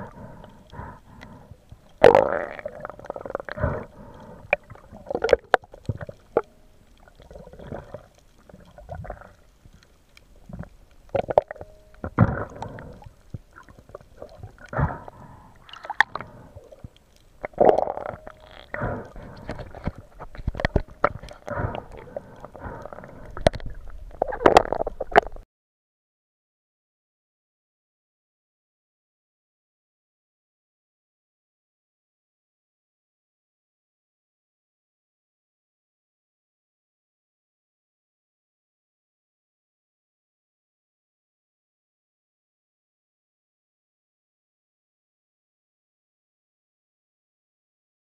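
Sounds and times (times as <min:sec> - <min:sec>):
underwater gurgling and bubbles: 0:00.0 - 0:25.4.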